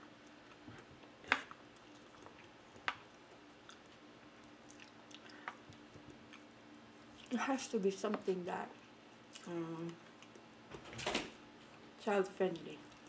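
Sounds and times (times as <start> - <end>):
quiet chewing: 0.0 - 7.4, 8.1 - 10.5, 12.5 - 13.0.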